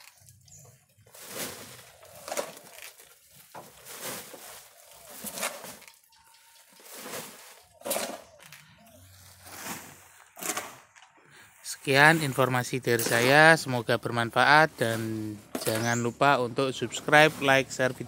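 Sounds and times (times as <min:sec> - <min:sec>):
hand tool scraping compost: 0:00.1 - 0:08.5, 0:09.2 - 0:11.0, 0:14.8 - 0:16.1, 0:16.8 - 0:18.0.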